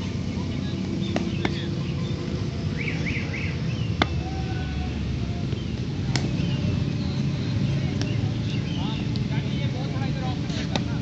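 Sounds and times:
steady low rumble: 0:00.0 - 0:11.0
cricket ball knocking on bat: 0:01.0 - 0:01.7, 0:04.0 - 0:04.2.

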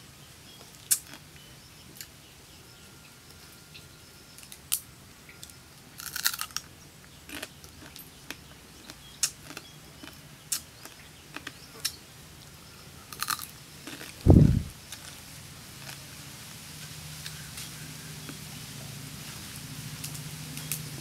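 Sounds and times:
chewing: 0:05.4 - 0:06.7, 0:07.3 - 0:12.0, 0:13.1 - 0:15.2.

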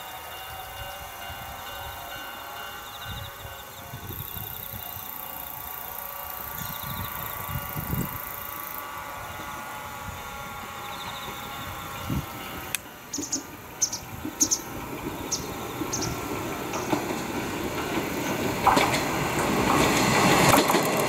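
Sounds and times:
electric train running on rails: 0:00.0 - 0:21.0.

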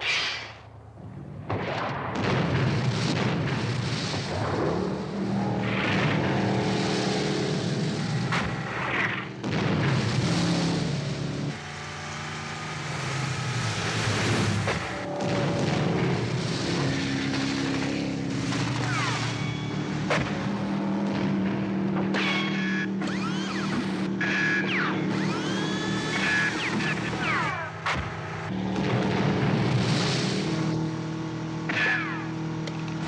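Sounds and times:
sharp bangs and booms: 0:01.4 - 0:11.0, 0:14.6 - 0:21.6.

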